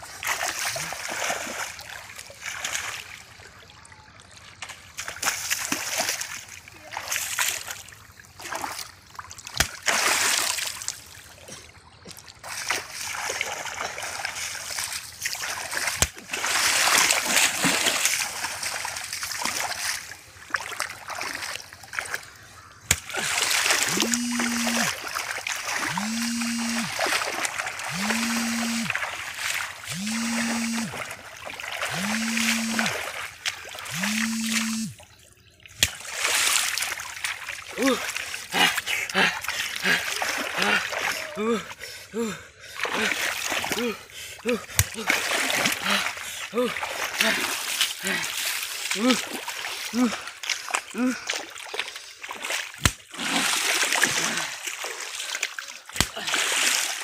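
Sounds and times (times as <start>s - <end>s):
muddy water splashing: 0.0s - 57.0s
low tone: 23.8s - 25.0s, 25.9s - 27.0s, 27.9s - 29.0s, 29.9s - 31.1s, 31.9s - 33.0s, 33.9s - 35.3s.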